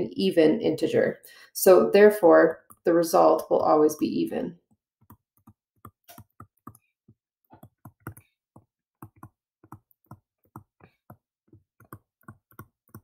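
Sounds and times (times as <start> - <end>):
stylus tapping on tablet screen: 2.5 - 2.9, 4.7 - 13.0.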